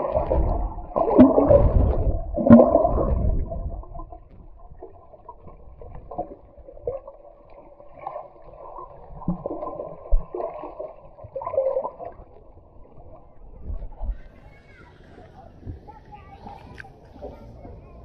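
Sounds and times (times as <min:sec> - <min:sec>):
small water splashes: 0:00.0 - 0:14.4
muffled water sloshing and gurgling: 0:00.0 - 0:14.6.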